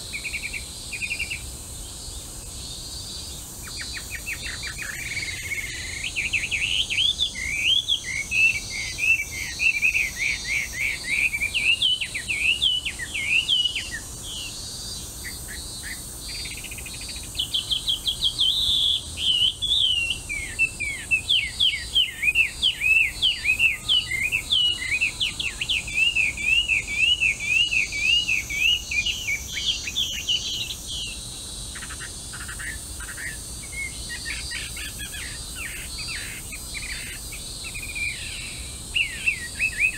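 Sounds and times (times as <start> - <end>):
faint high insect buzz: 0.0 - 39.9
bird singing whistled phrases: 3.7 - 14.0, 17.4 - 31.2, 37.7 - 39.9.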